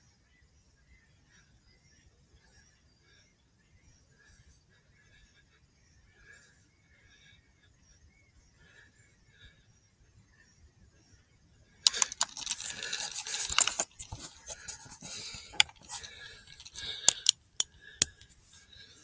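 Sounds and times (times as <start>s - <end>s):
rifle rattling and clicking: 11.9s - 18.4s.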